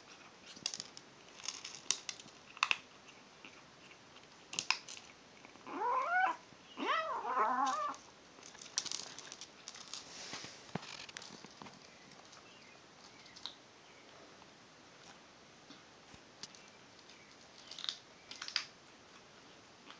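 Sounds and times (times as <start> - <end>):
kibble crunching: 0.0 - 6.4, 7.4 - 13.6, 16.1 - 19.9
kitten calling: 5.7 - 8.0.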